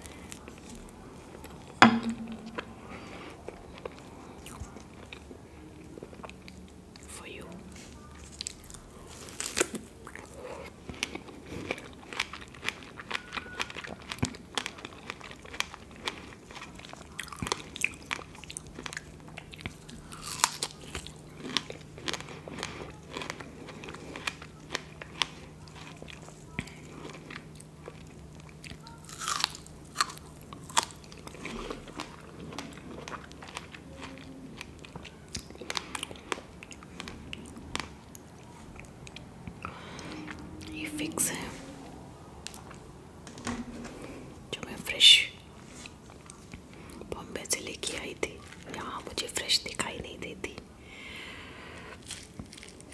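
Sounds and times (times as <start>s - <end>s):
biting and chewing: 8.1s - 40.4s, 51.8s - 52.9s.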